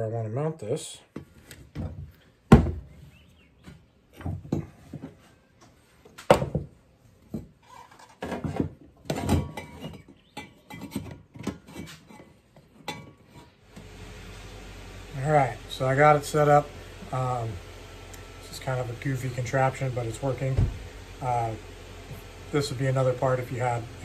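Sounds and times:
metal tools knocking on wood: 4.2s - 5.2s.

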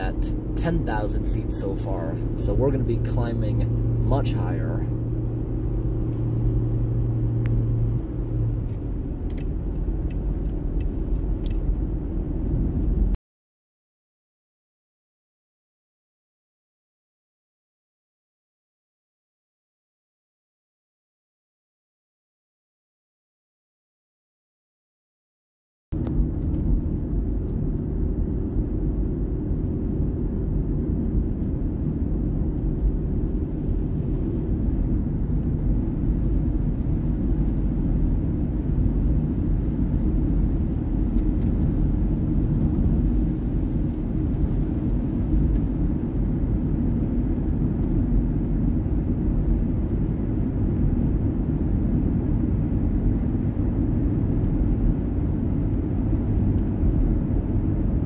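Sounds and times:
tyre and road noise rumble: 0.0s - 13.2s, 26.0s - 58.0s.

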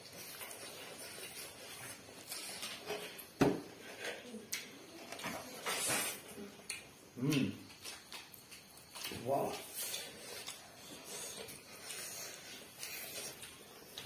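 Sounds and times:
chewing and lip smacking: 6.6s - 14.0s.

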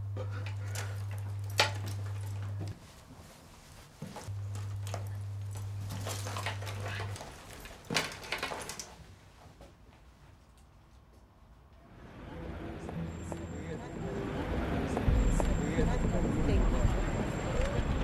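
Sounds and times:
low electrical hum: 0.0s - 18.0s
rummaging through a handbag: 4.3s - 9.1s.

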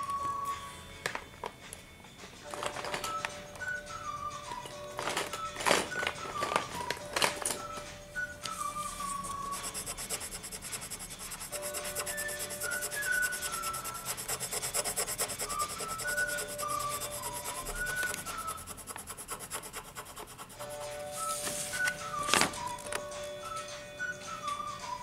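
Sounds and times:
pencil scratching on paper: 8.8s - 21.8s.

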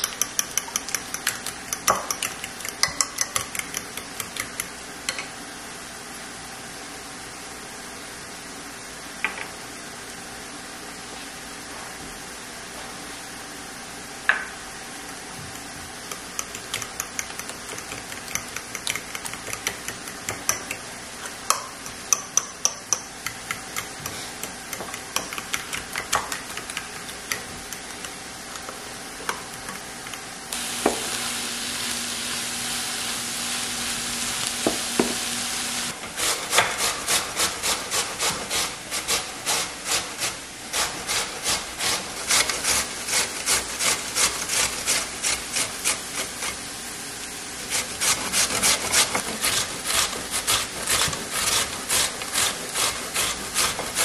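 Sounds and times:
spoon stirring in ceramic bowl: 0.0s - 5.3s, 15.6s - 30.3s
steady hiss: 30.5s - 46.6s
food scraping on metal grater: 36.2s - 46.6s, 47.6s - 54.0s.

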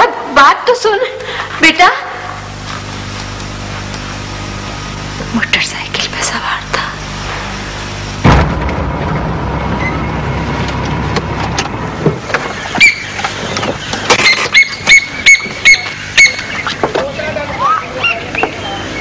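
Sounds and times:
car engine rumbling: 8.0s - 14.2s
high squeaky chirps: 12.7s - 16.8s.

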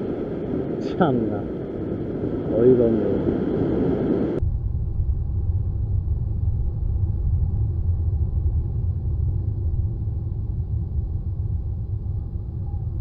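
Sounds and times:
ocean surf washing on rocks: 0.0s - 4.4s
wind buffeting microphone: 0.0s - 13.0s.

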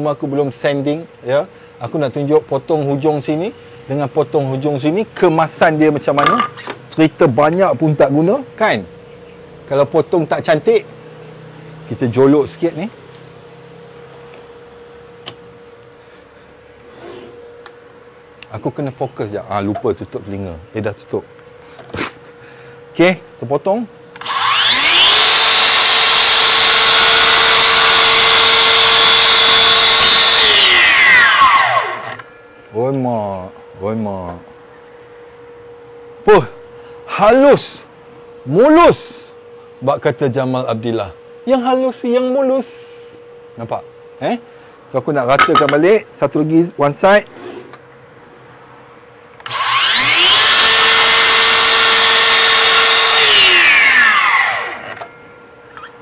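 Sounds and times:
saw click: 24.2s - 26.6s, 49.4s - 50.6s
mitre saw cutting wood: 24.2s - 32.2s, 49.4s - 55.0s.

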